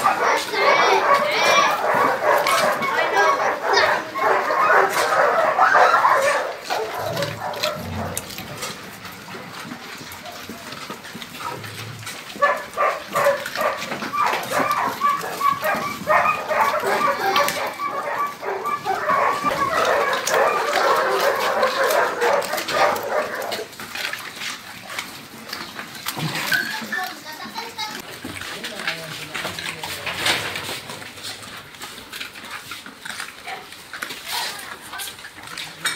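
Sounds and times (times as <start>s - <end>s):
dogs barking and yelping: 0.0s - 28.2s.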